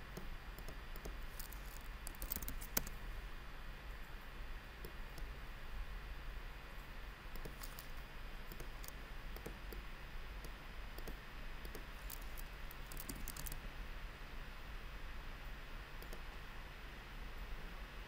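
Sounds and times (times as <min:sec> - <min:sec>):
faint low hum: 0:00.0 - 0:18.0
mouse and keyboard clicks: 0:00.2 - 0:03.0, 0:07.4 - 0:09.8, 0:10.4 - 0:13.6.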